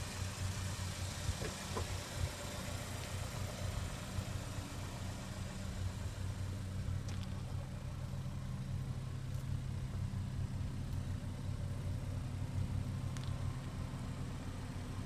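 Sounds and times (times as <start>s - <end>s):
car engine idling: 0.0s - 15.0s.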